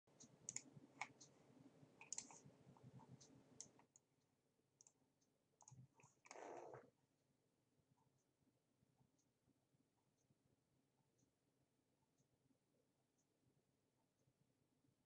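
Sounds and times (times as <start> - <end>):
computer mouse clicking: 0.2 - 1.3, 2.0 - 4.0, 5.6 - 6.8.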